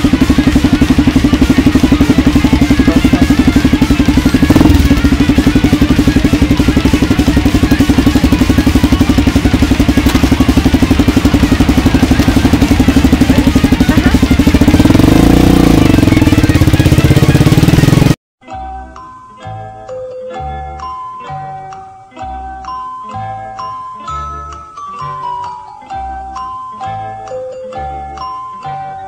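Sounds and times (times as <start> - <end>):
motorcycle engine idling and revving: 0.0 - 18.2.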